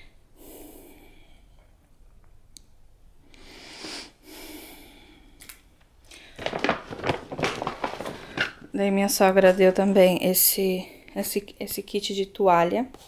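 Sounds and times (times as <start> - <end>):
soft breaths: 0.0 - 2.0, 3.2 - 6.5
fabric and hanger rustling: 6.2 - 10.6.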